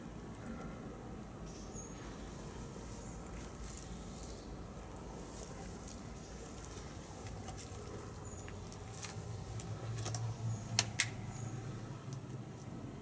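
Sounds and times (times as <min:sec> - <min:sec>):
footsteps crunching on debris: 0:03.3 - 0:10.3.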